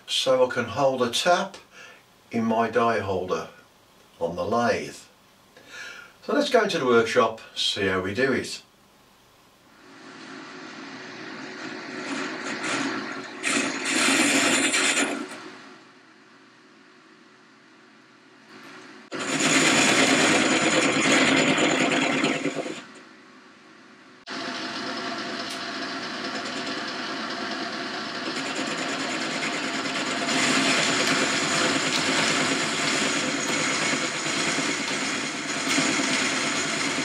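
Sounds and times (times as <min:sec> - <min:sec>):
metal lathe cutting: 0:09.9 - 0:15.4, 0:19.1 - 0:22.9, 0:24.3 - 0:37.0.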